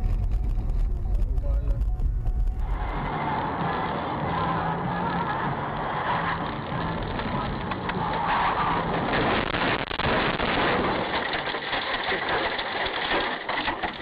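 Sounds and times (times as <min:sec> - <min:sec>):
car engine and road noise: 0:00.0 - 0:14.0
small clicks and rattles: 0:09.2 - 0:14.0.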